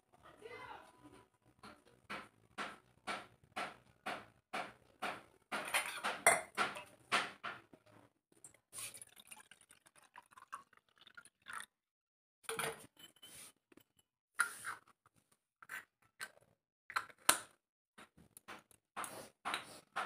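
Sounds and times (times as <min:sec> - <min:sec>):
metal vessels clinking: 0:05.1 - 0:07.3
water pouring into metal pot: 0:08.5 - 0:11.7.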